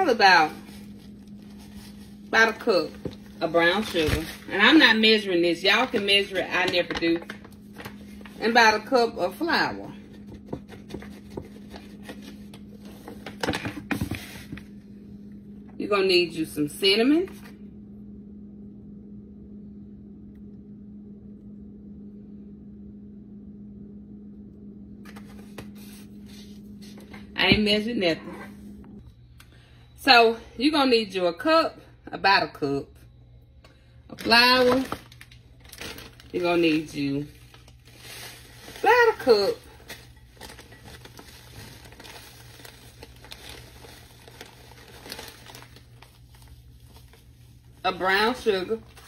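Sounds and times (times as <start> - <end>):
steady low hum: 0.0 - 49.0
plastic bag crinkling: 0.4 - 5.0, 34.2 - 49.0.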